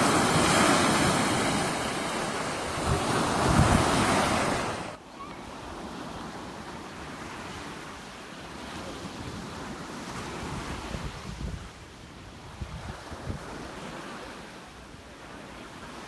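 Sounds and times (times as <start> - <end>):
wind buffeting microphone: 0.0 - 5.0, 10.3 - 13.7
surf washing up beach: 0.0 - 16.0.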